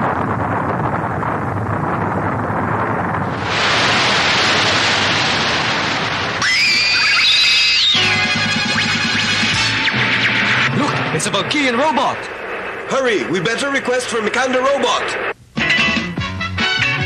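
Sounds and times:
dense rushing rumble: 0:00.0 - 0:15.4
rising electronic whine: 0:06.3 - 0:15.4.

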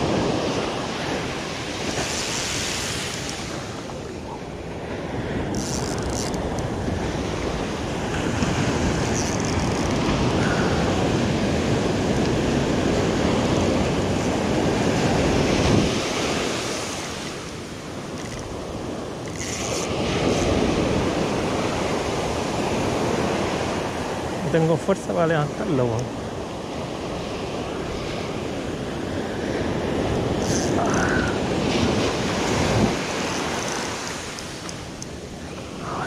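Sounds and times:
ocean surf breaking on shore: 0:00.0 - 0:36.0.

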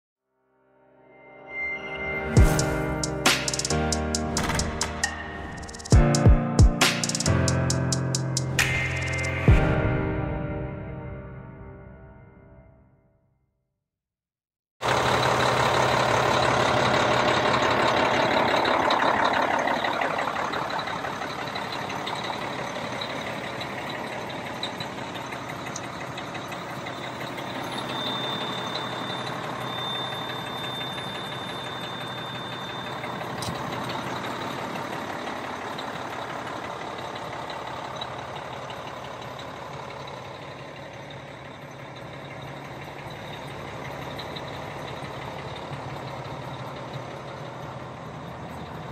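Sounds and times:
diesel truck idling: 0:14.8 - 0:48.9.

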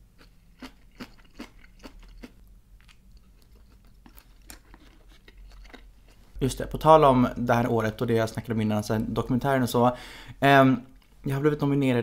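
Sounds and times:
close chewing with mouth clicks: 0:00.2 - 0:06.2.

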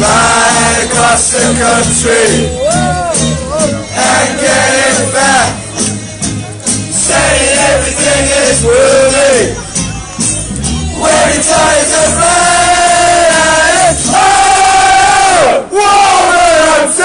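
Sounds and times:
crowd singing a chant: 0:00.0 - 0:02.9, 0:03.5 - 0:05.7, 0:06.9 - 0:09.7, 0:10.8 - 0:17.0
music with steady beat: 0:00.0 - 0:14.2.

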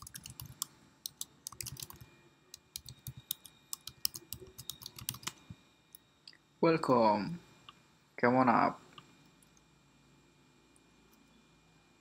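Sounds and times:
typing on computer keyboard: 0:00.0 - 0:02.0, 0:02.6 - 0:05.4.

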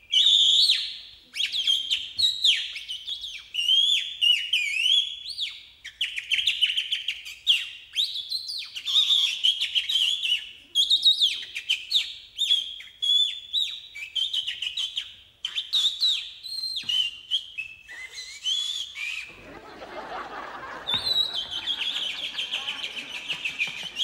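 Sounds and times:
whistled bird call imitation: 0:08.6 - 0:24.0.

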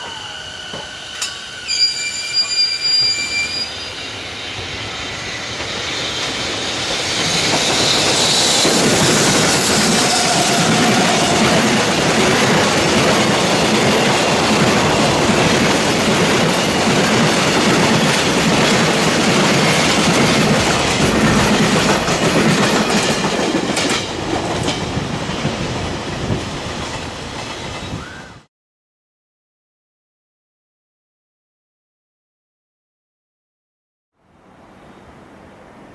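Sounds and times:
freight train rolling past: 0:00.0 - 0:28.4.

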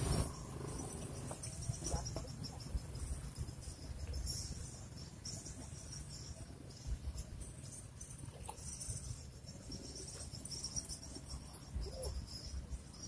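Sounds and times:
insects trilling: 0:00.0 - 0:13.0
low steady rumble: 0:00.0 - 0:13.0.

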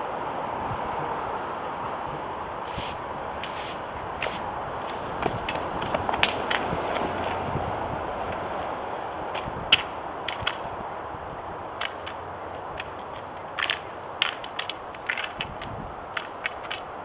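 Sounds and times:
steady background hiss: 0:00.0 - 0:17.0
stick swords clacking: 0:02.7 - 0:07.4, 0:09.3 - 0:10.7, 0:11.8 - 0:17.0.

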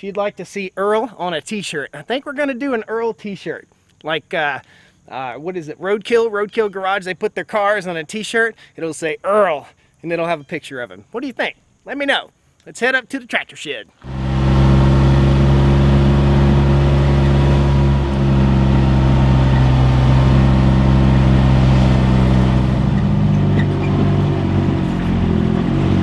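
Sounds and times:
tyres on gravel: 0:14.0 - 0:26.0
vehicle engine running: 0:14.0 - 0:26.0.

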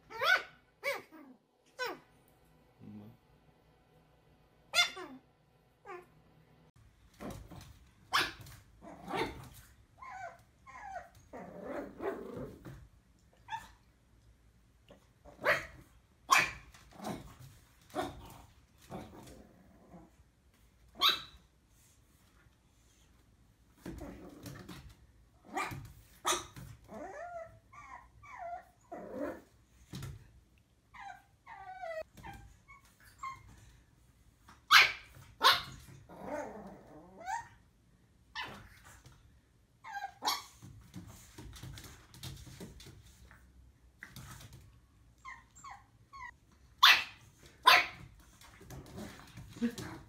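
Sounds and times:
puppy growling and whining: 0:00.0 - 0:02.1, 0:08.8 - 0:12.8, 0:18.0 - 0:20.2, 0:23.8 - 0:25.8, 0:26.7 - 0:29.6, 0:30.9 - 0:33.6, 0:35.8 - 0:37.6, 0:39.8 - 0:40.5, 0:45.2 - 0:46.4
puppy barking: 0:00.1 - 0:01.1, 0:04.7 - 0:05.2, 0:08.1 - 0:09.4, 0:15.4 - 0:16.7, 0:21.0 - 0:21.4, 0:34.7 - 0:35.8, 0:46.8 - 0:48.1.

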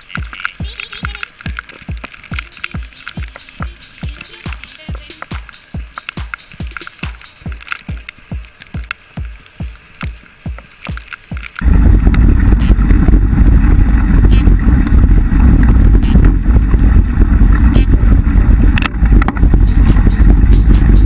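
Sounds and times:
bike rattling over gravel: 0:00.0 - 0:09.0, 0:10.0 - 0:21.0
low repeating thump: 0:00.2 - 0:21.0
wind buffeting microphone: 0:11.5 - 0:21.0.

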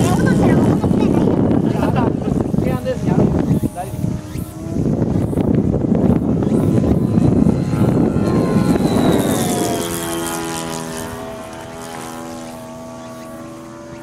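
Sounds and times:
loud rough rushing noise: 0:00.0 - 0:14.0
model airplane droning buzz: 0:00.0 - 0:14.0.

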